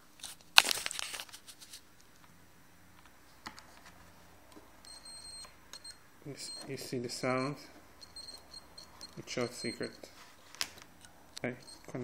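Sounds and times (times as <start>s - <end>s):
multimeter continuity beep: 4.8s - 10.1s, 11.5s - 12.0s.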